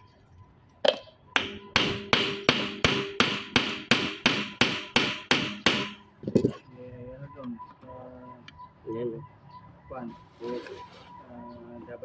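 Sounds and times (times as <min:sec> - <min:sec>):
hammer tapping metal: 0:01.4 - 0:06.0.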